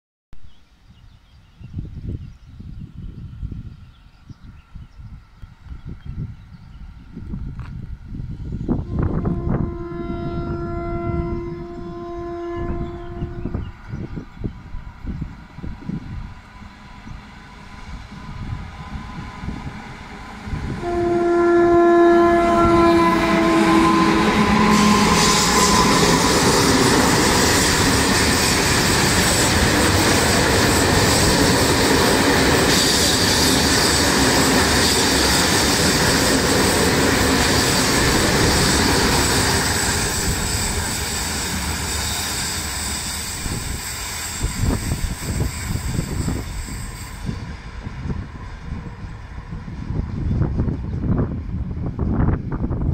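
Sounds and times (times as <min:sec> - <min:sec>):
freight train wheels rumbling: 0:02.6 - 0:52.9
locomotive horn: 0:08.8 - 0:13.8, 0:20.7 - 0:29.0.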